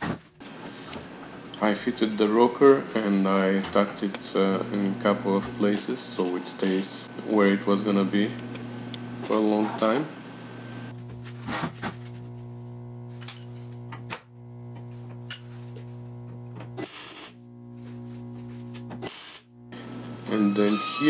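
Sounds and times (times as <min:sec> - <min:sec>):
welding bursts: 0:16.8 - 0:17.5, 0:18.9 - 0:19.7.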